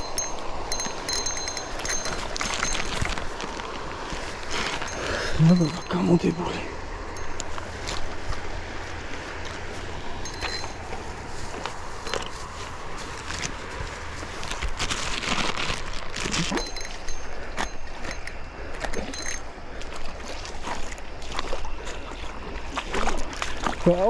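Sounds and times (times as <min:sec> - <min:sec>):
river water flowing: 0:00.0 - 0:14.4, 0:16.0 - 0:24.0
water splashing: 0:18.7 - 0:24.0.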